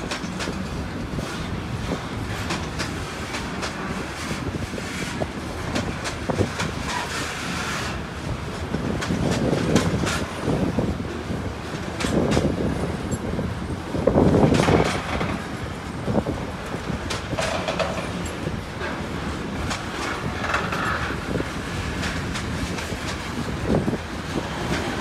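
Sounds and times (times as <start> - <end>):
train wheels rumbling on rail: 0.0 - 25.0
wheel clicks and clacks: 17.0 - 18.9, 19.6 - 24.0.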